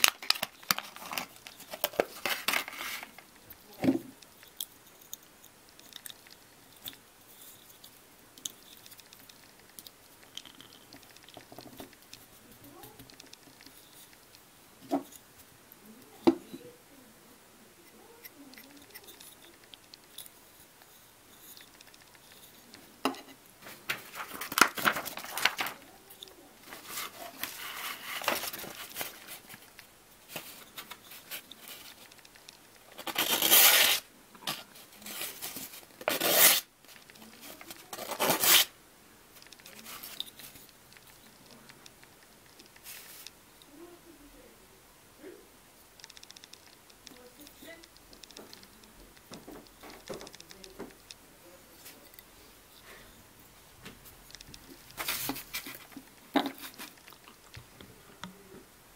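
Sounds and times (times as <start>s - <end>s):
knife slicing through paper: 33.1s - 34.0s, 36.1s - 36.7s, 38.0s - 38.7s.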